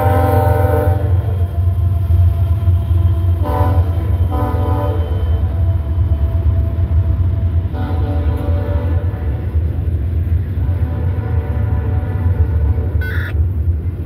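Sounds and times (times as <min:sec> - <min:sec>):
locomotive air horn blasts: 0:00.0 - 0:01.4, 0:03.4 - 0:05.6, 0:07.7 - 0:09.7, 0:10.6 - 0:13.4
freight train rumble: 0:00.0 - 0:14.0.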